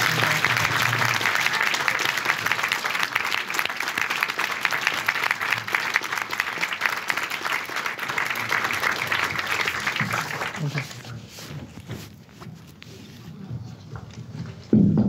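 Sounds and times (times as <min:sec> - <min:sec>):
audience applauding: 0:00.0 - 0:11.5.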